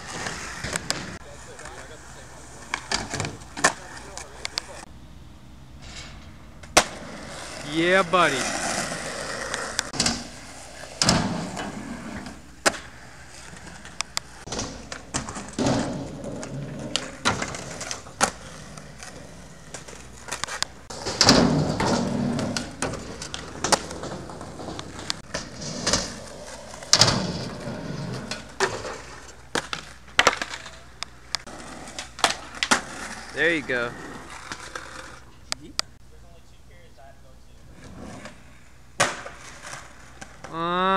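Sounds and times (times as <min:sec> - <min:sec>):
skateboard wheels rolling on asphalt: 0:00.0 - 0:04.9, 0:06.6 - 0:36.0, 0:37.6 - 0:40.6
skateboard deck pops and clacks: 0:12.6 - 0:13.0, 0:19.7 - 0:26.2, 0:28.2 - 0:33.0, 0:39.0 - 0:40.5.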